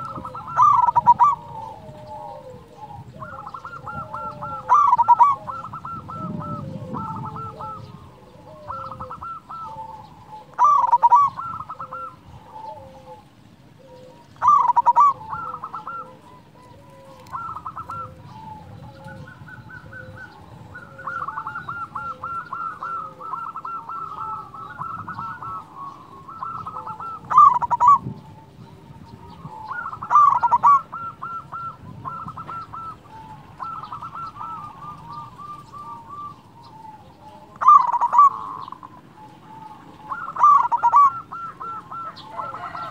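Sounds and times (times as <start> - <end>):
dove cooing: 0.0 - 42.9.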